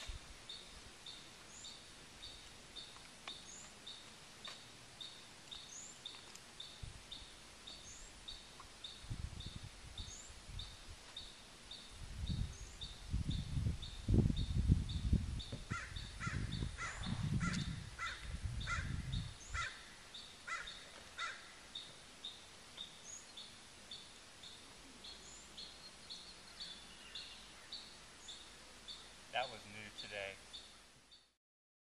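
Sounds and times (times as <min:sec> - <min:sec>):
harsh bird calls: 0:13.9 - 0:22.0, 0:24.5 - 0:30.8.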